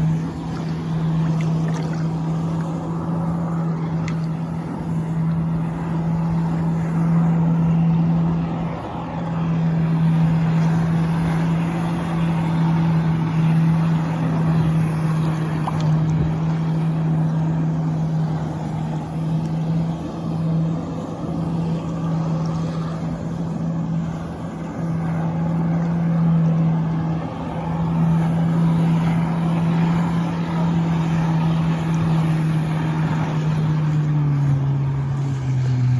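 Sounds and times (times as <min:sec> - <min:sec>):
jet ski engine at high revs: 0:00.0 - 0:35.9
water spray rushing: 0:00.0 - 0:35.9.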